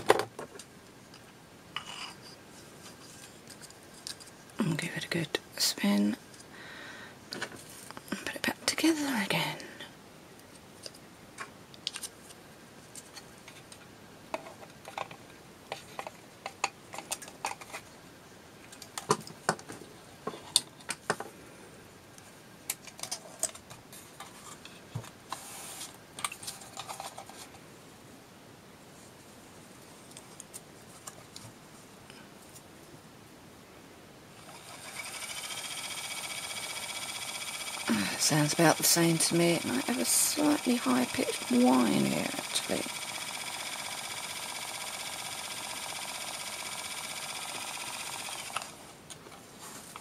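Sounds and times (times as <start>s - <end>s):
spinner motor whining: 34.4s - 48.8s.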